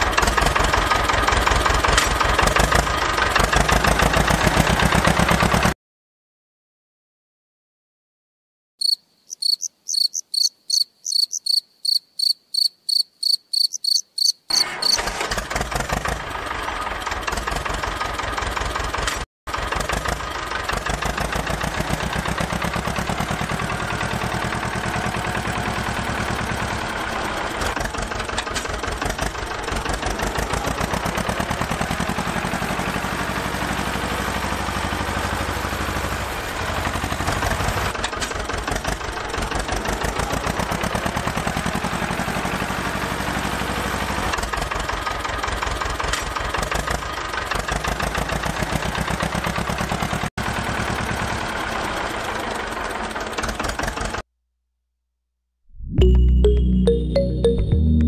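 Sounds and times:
small motor chugging: 14.5s - 54.2s
high electronic beeping: 55.8s - 58.0s.

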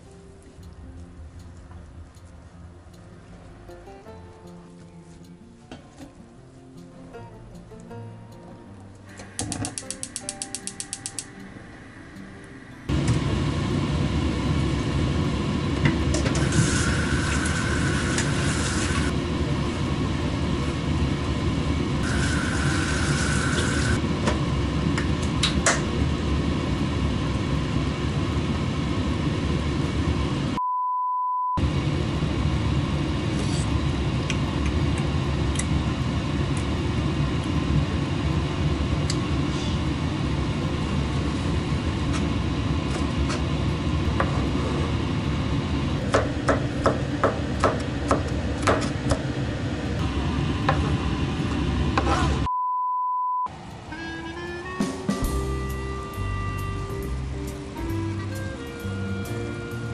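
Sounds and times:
kitchen noise drone: 9.0s - 30.3s, 31.6s - 52.5s.

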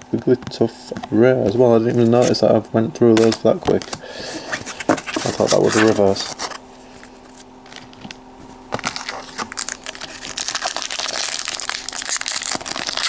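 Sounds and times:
foil wrapper crinkling: 4.6s - 6.7s, 7.3s - 13.0s.

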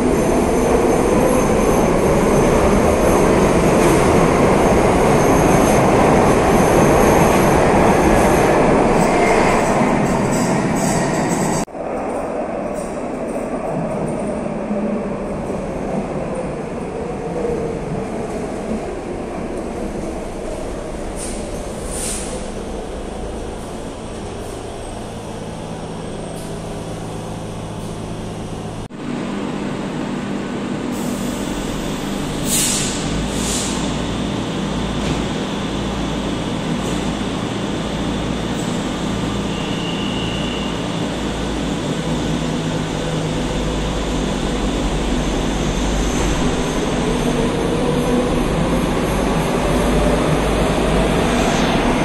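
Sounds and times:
electric train rumble and hum: 0.0s - 52.0s
air hisses: 32.4s - 33.9s.

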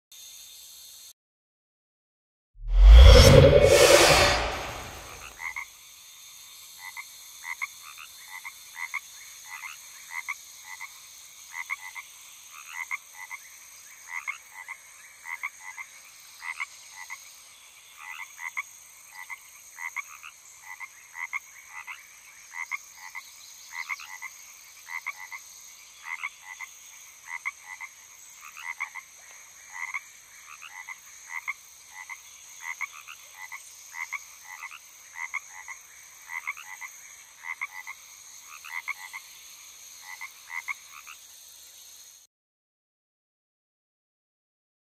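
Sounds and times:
frogs croaking: 6.8s - 41.3s.

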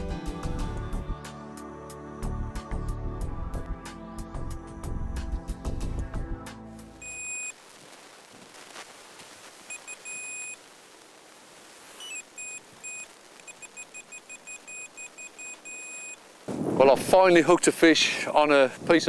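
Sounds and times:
fishing bite alarm beeping: 12.0s - 16.2s.

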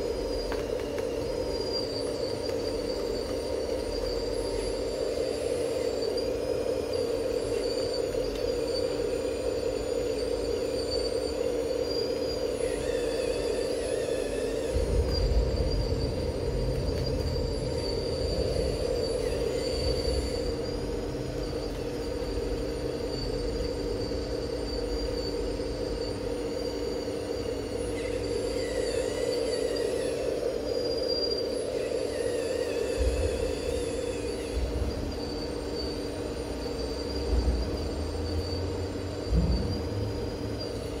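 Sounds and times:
electric motors humming: 0.0s - 41.0s
high-pitched motor whines: 0.0s - 41.0s.

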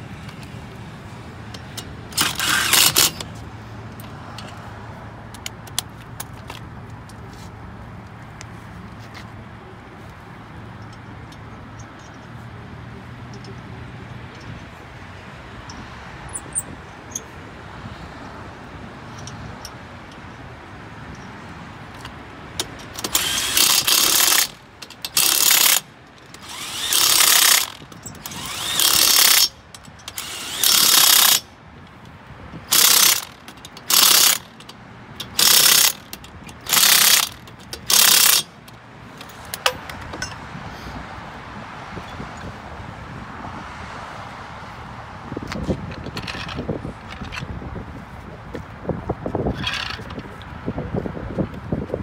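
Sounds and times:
impact wrench bursts: 1.6s - 3.3s, 22.6s - 31.6s, 32.7s - 40.3s.

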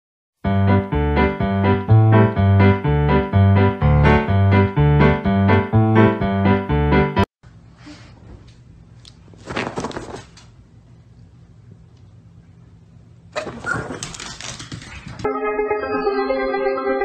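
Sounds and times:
bouncy piano tune: 0.4s - 7.3s, 15.2s - 17.0s.

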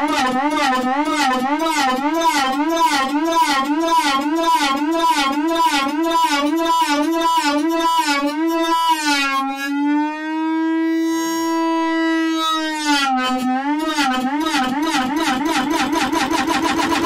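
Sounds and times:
synthesizer held note wobbling: 0.0s - 17.0s.

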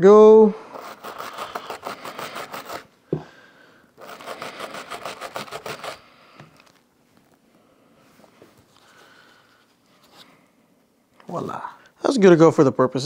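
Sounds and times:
rapid scrubbing strokes on metal: 0.7s - 2.8s, 4.0s - 6.0s.

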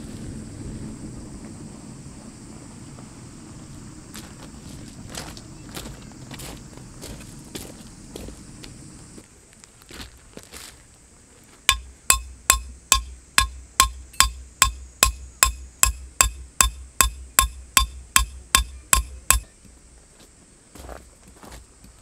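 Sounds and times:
metallic hammer strikes ringing: 11.7s - 19.6s.

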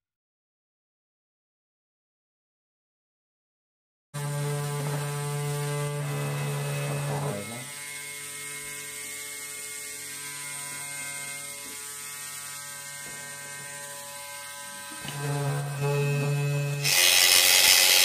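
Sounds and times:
small motor humming: 4.2s - 18.0s.

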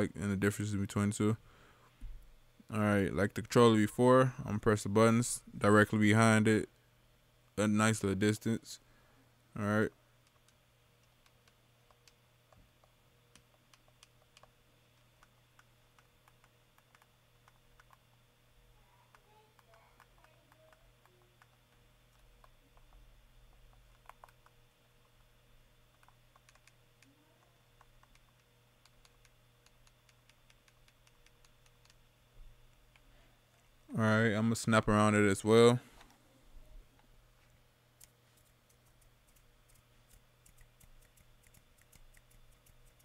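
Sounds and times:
controller buttons clicking: 10.3s - 18.2s, 25.9s - 27.1s, 27.8s - 32.0s.

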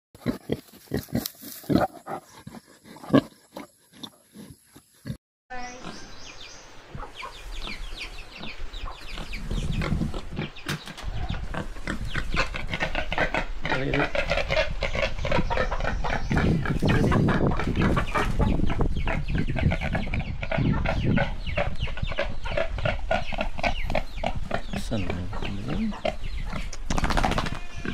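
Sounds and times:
chickens clucking: 5.6s - 27.9s.

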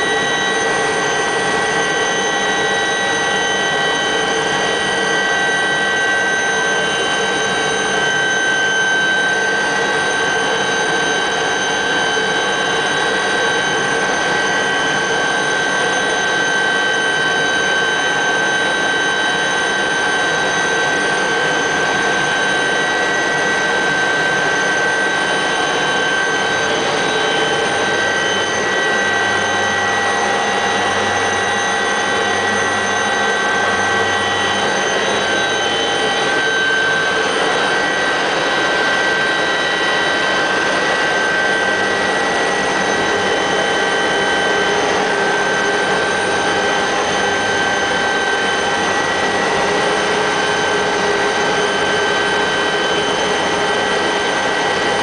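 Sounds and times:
helicopter engine and rotor noise: 0.0s - 55.0s
high-pitched whines: 0.0s - 55.0s.

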